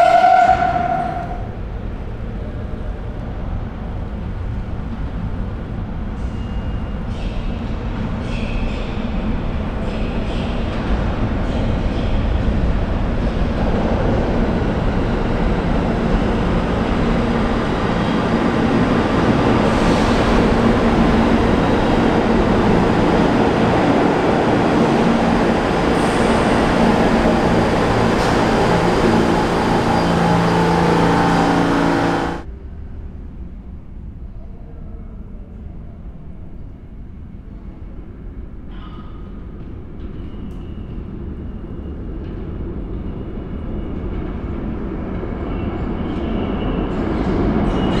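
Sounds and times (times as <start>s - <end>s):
train wheels rumbling on rails: 0.0s - 34.2s, 34.8s - 48.0s
train whine: 0.0s - 34.2s.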